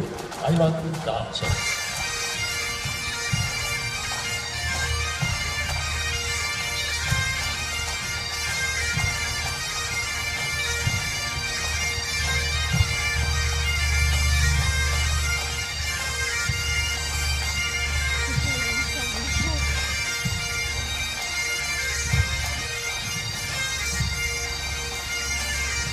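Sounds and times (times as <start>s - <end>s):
bagpipes playing dance tune: 0.0s - 25.9s
low drum beat: 18.3s - 20.4s.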